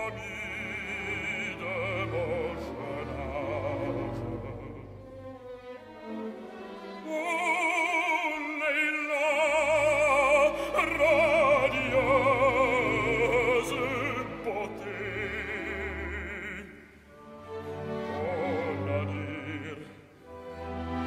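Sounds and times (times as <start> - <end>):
operatic baritone singing: 0.0 - 5.2, 7.0 - 20.2
orchestra playing: 0.0 - 21.0.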